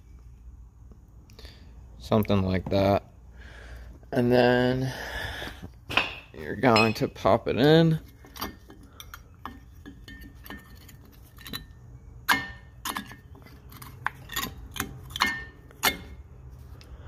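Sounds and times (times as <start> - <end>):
sharp metal knocks: 12.3 - 13.2.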